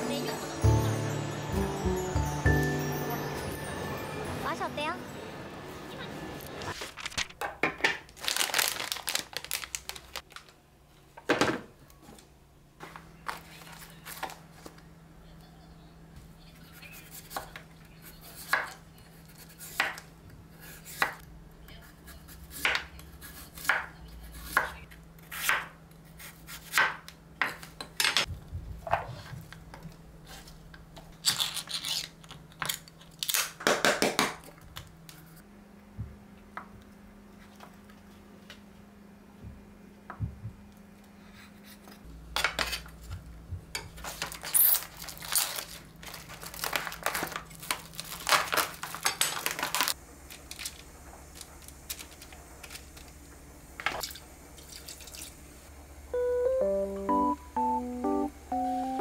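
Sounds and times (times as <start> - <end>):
crinkling and handling noise: 6.6 - 14.9, 43.9 - 53.2.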